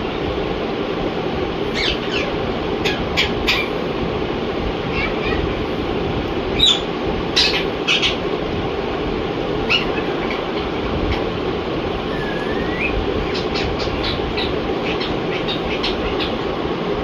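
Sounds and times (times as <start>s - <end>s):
steady background noise: 0.0s - 17.0s
parakeet chirping and whistling: 1.7s - 3.7s, 6.5s - 8.2s, 9.6s - 10.6s, 12.1s - 16.4s.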